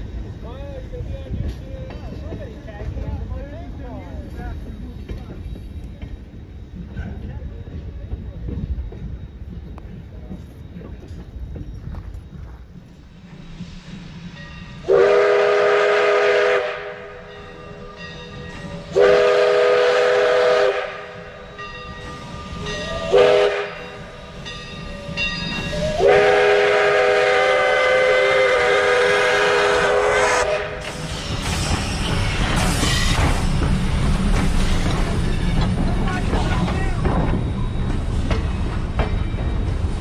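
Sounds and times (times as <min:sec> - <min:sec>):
train wheels rumbling past: 0:00.0 - 0:40.0
steam locomotive whistle blasts: 0:14.8 - 0:17.9, 0:18.8 - 0:21.4, 0:22.6 - 0:24.0, 0:25.6 - 0:31.0.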